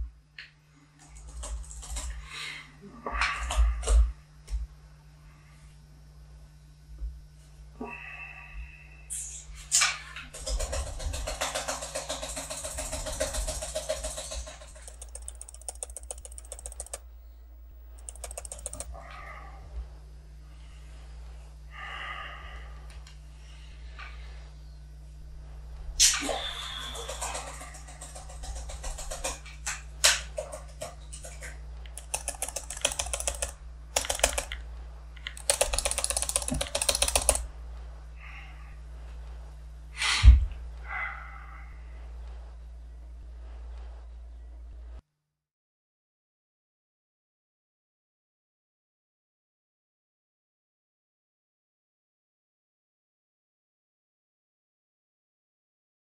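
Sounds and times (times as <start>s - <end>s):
fast typing on laptop keyboard: 1.0s - 2.2s, 10.3s - 18.9s, 26.5s - 34.6s, 35.2s - 37.5s.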